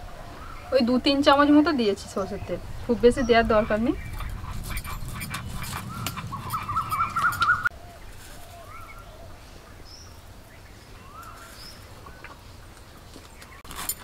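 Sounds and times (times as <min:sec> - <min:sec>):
dog whining: 0:04.1 - 0:07.7.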